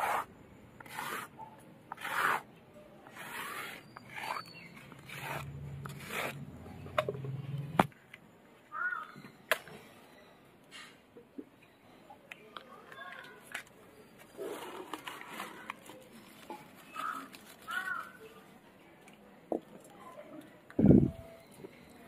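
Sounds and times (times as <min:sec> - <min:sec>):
stone roller grinding on stone slab: 0:00.0 - 0:01.3, 0:01.9 - 0:02.4, 0:03.0 - 0:06.4
scraping paste off stone slab: 0:00.0 - 0:06.4.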